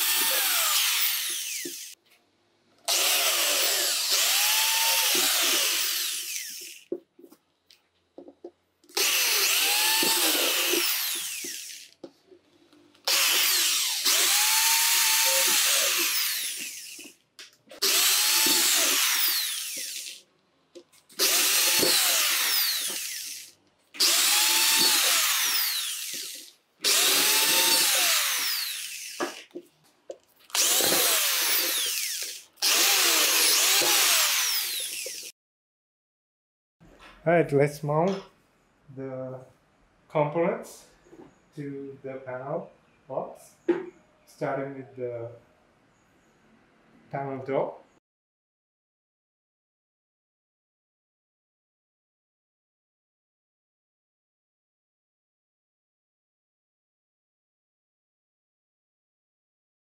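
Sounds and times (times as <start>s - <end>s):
electric drill drilling sheet metal: 0.0s - 2.0s, 2.9s - 6.9s, 9.0s - 11.9s, 13.1s - 17.2s, 17.8s - 20.2s, 21.2s - 29.4s, 30.5s - 35.4s.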